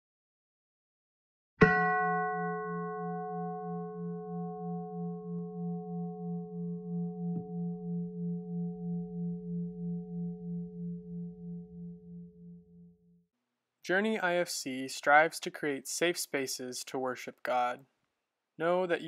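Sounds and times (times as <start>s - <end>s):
bell-like tone ringing: 1.6s - 13.2s.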